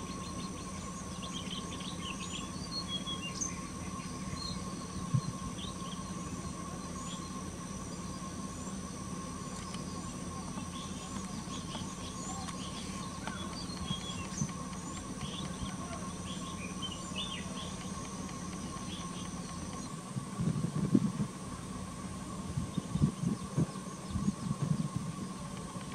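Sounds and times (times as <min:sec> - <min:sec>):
small birds chirping: 0:00.0 - 0:20.0
steady low hum: 0:00.0 - 0:25.9.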